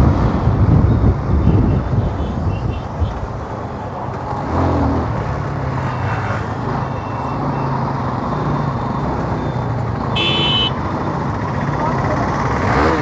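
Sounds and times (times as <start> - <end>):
road and wind noise: 0.0 - 13.0
vehicle horn beep: 1.4 - 2.9, 10.1 - 10.8.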